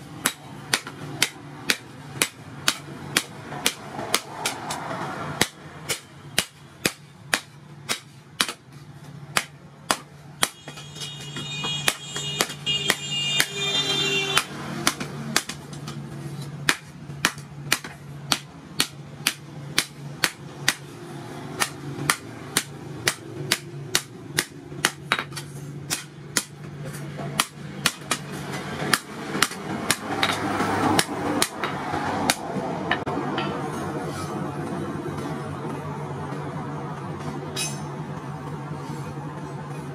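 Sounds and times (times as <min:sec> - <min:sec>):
hammer beating steel on anvil: 0:00.0 - 0:08.6, 0:37.5 - 0:38.0.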